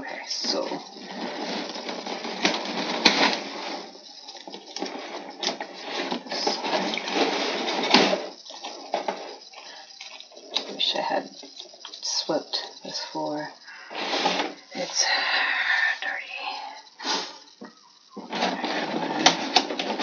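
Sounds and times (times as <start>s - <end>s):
plastic bags crinkling: 0.0s - 20.0s.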